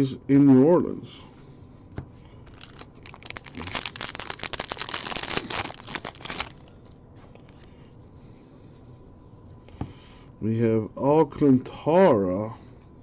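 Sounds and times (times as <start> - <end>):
foil wrapper crinkling and tearing: 2.4 - 7.0.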